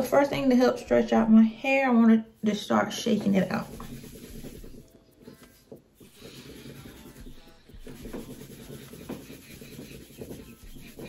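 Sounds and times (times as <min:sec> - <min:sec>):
fingers rustling through hair: 0:02.5 - 0:11.0.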